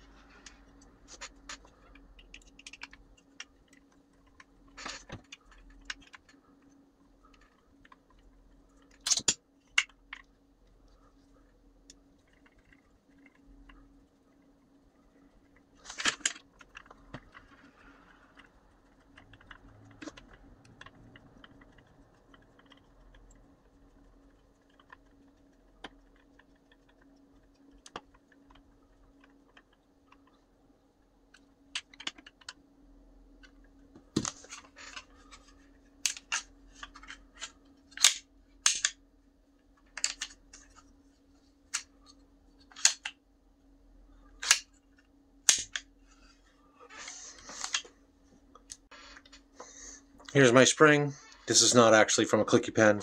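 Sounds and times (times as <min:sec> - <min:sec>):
plastic clicks and snaps: 0:44.4 - 0:44.8, 0:45.4 - 0:45.9.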